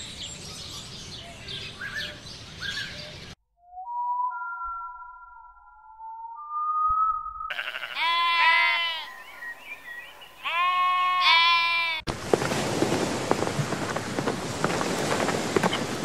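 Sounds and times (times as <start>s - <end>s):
sheep bleating: 7.5s - 9.2s, 10.4s - 12.1s.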